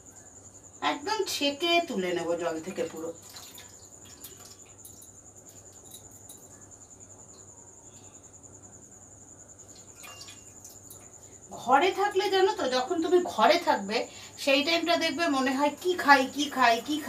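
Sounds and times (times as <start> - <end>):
hands squeezing soaked rice: 3.2 - 4.9.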